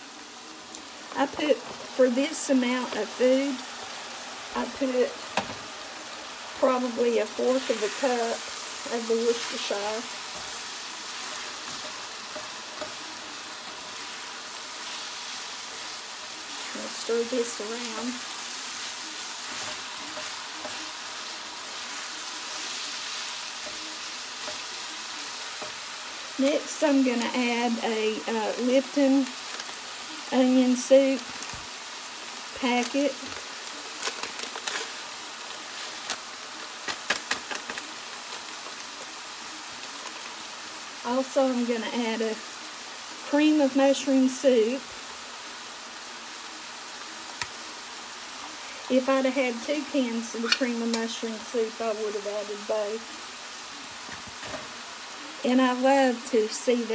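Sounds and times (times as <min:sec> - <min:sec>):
meat sizzling in a skillet: 0:00.0 - 0:56.9
spatula scraping a skillet: 0:07.4 - 0:26.0.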